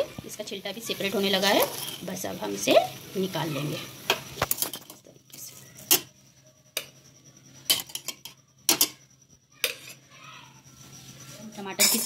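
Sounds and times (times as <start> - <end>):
spoon clinking against metal pot: 7.6 - 9.0, 9.6 - 10.0, 11.7 - 12.0.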